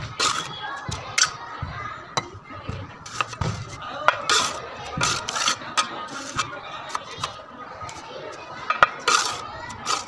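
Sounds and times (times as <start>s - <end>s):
trowel scraping mortar: 0.0s - 1.4s, 3.0s - 3.4s, 4.2s - 8.0s, 8.7s - 10.0s.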